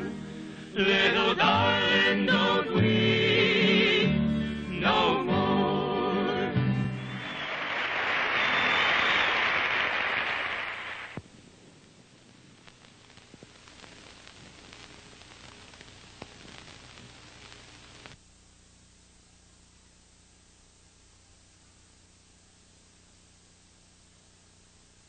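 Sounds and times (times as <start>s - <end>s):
old recording hiss and crackle: 0.0s - 25.0s
audience applauding: 6.9s - 11.2s.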